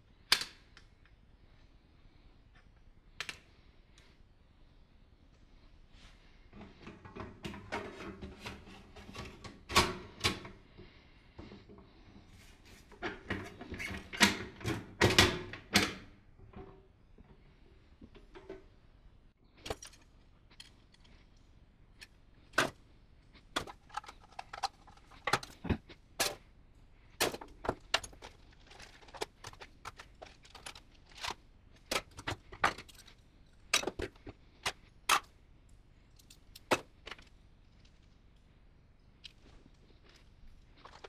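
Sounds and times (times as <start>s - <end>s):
metal parts clattering on workbench: 27.2s - 34.2s.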